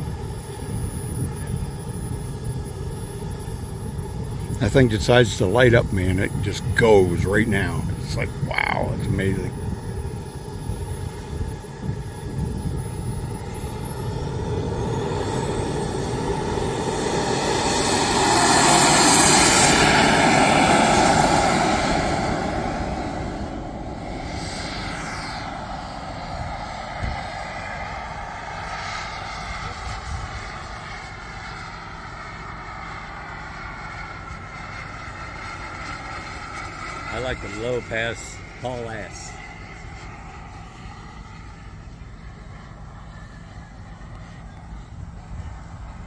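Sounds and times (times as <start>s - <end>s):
jet rush: 0.0s - 31.7s
model jet turbine whine: 0.0s - 46.0s.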